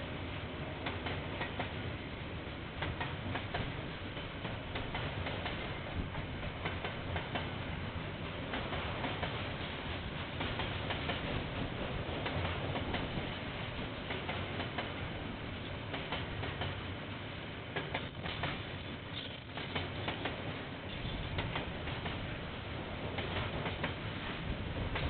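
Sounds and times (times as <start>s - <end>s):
train wheels rumbling on rail: 0.0s - 25.0s
wheels clicking on track: 17.8s - 22.2s.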